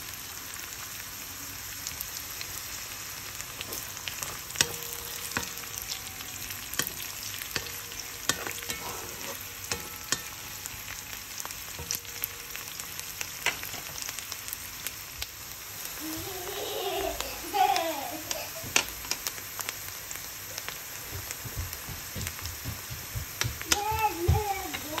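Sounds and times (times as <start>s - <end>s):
vegetables sizzling in hot oil: 0.0s - 25.0s
spatula scraping a wok: 3.4s - 11.2s.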